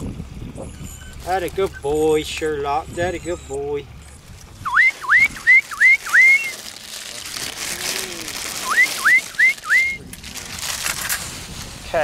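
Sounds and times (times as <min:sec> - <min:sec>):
person whistling squeaky calls: 0:02.8 - 0:03.8, 0:04.6 - 0:06.6, 0:08.6 - 0:10.1.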